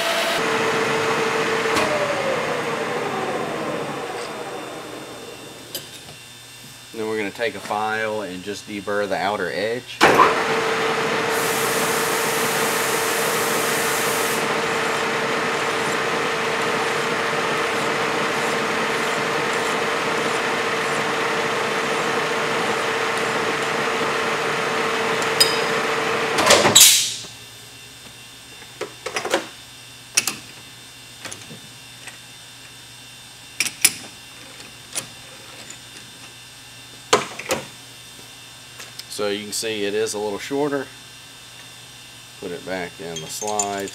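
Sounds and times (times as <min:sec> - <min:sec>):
metal lathe humming: 0:00.0 - 0:06.6, 0:10.3 - 0:26.4
file against spinning barrel: 0:14.6 - 0:22.0.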